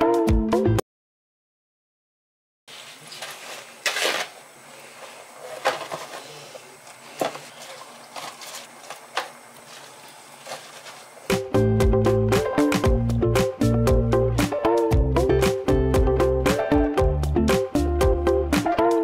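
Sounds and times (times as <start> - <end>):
faint room hum: 2.7 - 12.9.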